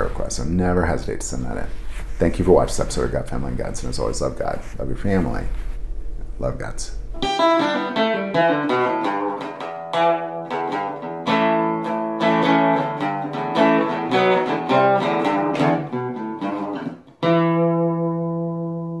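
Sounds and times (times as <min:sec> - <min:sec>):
acoustic guitar picking: 0:07.0 - 0:18.7.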